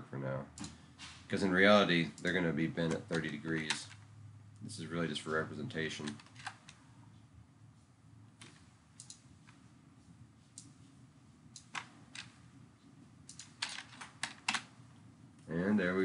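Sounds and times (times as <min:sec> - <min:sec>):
low steady hum: 0:00.0 - 0:16.0
computer mouse clicks: 0:08.4 - 0:09.6, 0:11.5 - 0:12.4, 0:13.2 - 0:14.7.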